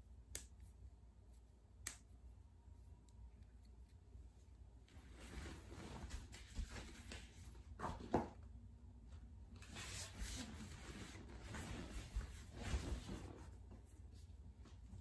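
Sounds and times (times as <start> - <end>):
clothing rustling: 4.8 - 8.2, 9.6 - 15.0.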